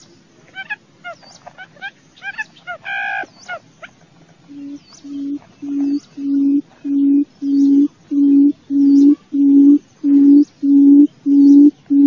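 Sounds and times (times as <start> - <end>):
bird deep hooting call: 4.5 - 12.0.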